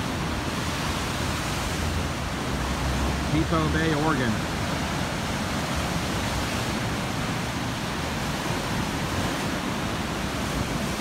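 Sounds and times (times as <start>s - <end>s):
waves crashing on rocks: 0.0s - 11.0s.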